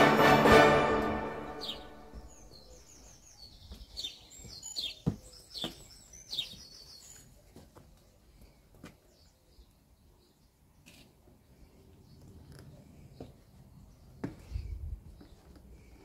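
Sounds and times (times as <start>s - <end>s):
background music: 0.0s - 2.7s
small birds chirping: 1.6s - 16.0s.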